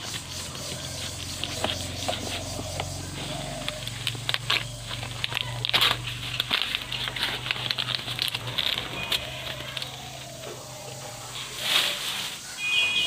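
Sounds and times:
banana leaf rustling and crinkling: 0.0 - 13.0.

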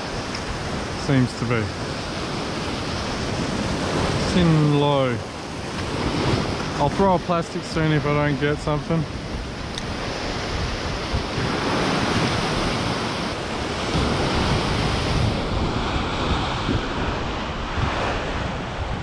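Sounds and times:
surf breaking on rocks: 0.0 - 19.0
wind buffeting microphone: 0.0 - 19.0.

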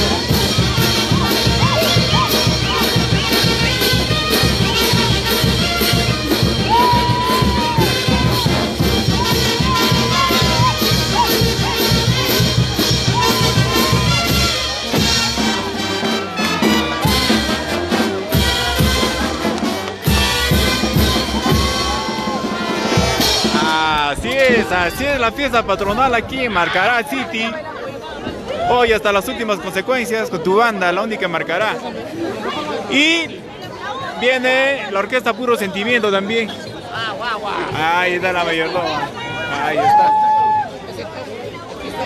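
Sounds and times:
brass band playing dance music: 0.0 - 25.6
crowd noise: 0.0 - 42.0.

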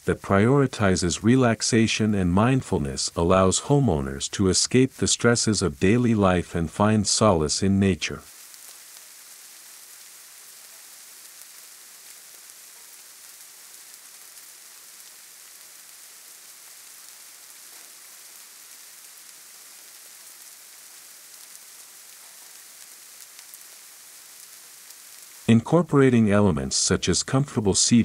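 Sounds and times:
steady faint hiss: 0.0 - 28.0.

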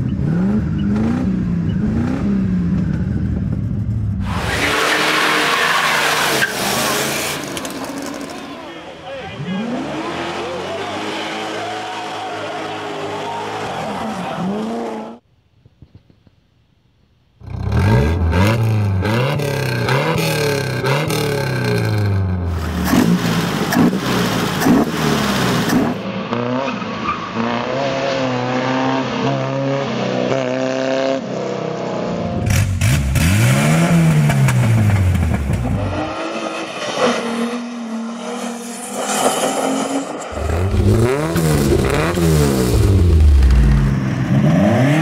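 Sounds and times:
car engine revving hard: 17.4 - 26.7, 32.5 - 37.6, 40.3 - 45.0.

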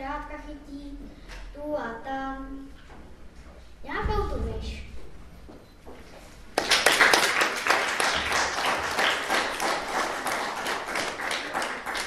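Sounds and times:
audience applauding: 6.6 - 12.0.

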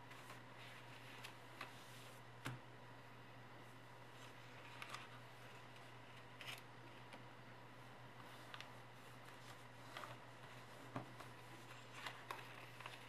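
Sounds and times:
steady low hum: 0.0 - 13.0
paper rustling and crinkling: 4.2 - 6.7, 8.2 - 13.0.

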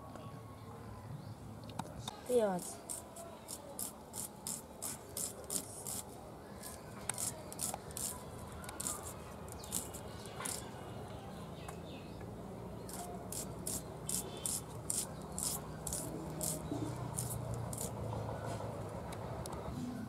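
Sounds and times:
onion skin scraping: 2.4 - 10.7, 12.8 - 18.1.

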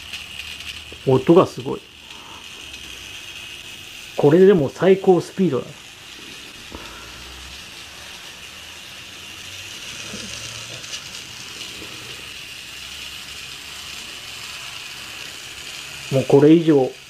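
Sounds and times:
model train whirring: 0.0 - 17.0.

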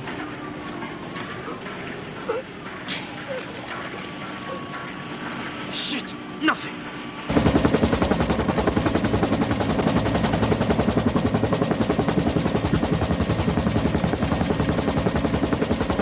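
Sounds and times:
helicopter rotor chopping: 0.0 - 16.0.

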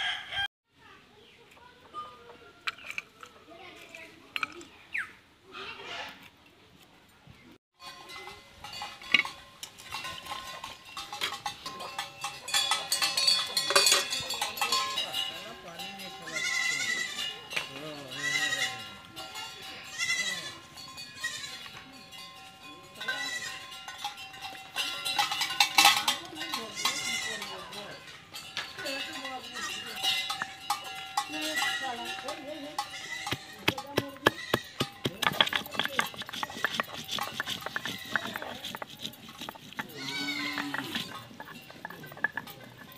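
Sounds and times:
steel utensils clinking: 7.8 - 42.9
goats bleating: 16.2 - 17.3, 18.1 - 18.9, 19.8 - 21.7, 32.9 - 34.9, 39.8 - 41.2
stone knocking on stone: 33.3 - 42.9.

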